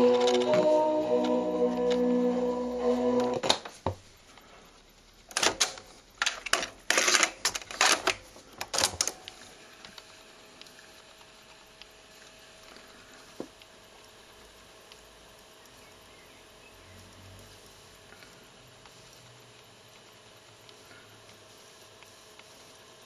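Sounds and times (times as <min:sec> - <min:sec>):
music from radio-cassette player: 0:00.0 - 0:03.8
faint hum and hiss: 0:00.0 - 0:23.0.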